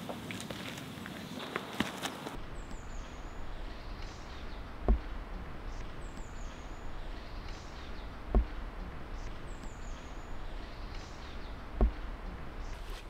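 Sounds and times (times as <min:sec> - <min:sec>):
rustling hiss: 0:00.0 - 0:13.0
high falling bird chirps: 0:02.2 - 0:13.0
dull low thump: 0:02.4 - 0:12.8.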